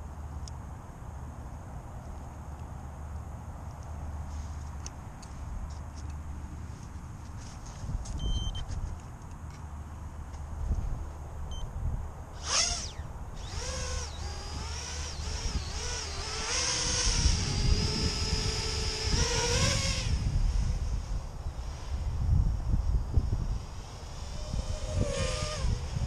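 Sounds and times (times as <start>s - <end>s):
wind rumble on microphone: 5.0s - 9.2s, 10.0s - 26.0s
drone propellers whining: 12.3s - 26.0s.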